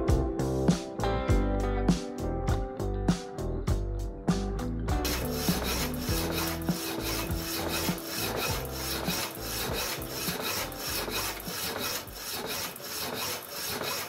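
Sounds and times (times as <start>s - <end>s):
power hacksaw cutting steel bar: 5.0s - 14.0s.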